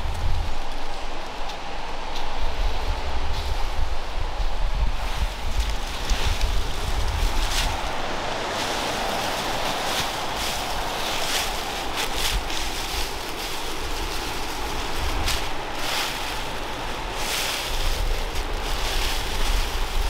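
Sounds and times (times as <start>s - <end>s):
wind buffeting microphone: 0.0s - 20.0s
river rushing: 0.5s - 20.0s
footsteps crunching through dry leaves: 2.2s - 20.0s.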